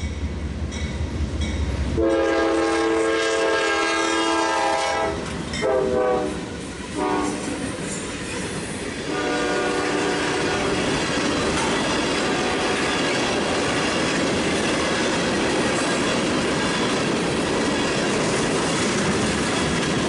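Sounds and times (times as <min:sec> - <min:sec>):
crossing bell dinging: 0:00.0 - 0:01.9, 0:05.5 - 0:05.9
locomotive air horn blasts: 0:02.0 - 0:07.6, 0:09.1 - 0:10.8.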